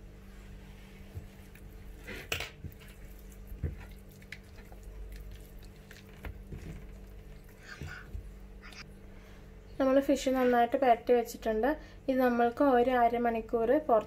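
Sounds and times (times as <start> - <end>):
wet squelching of paste: 2.6 - 8.1.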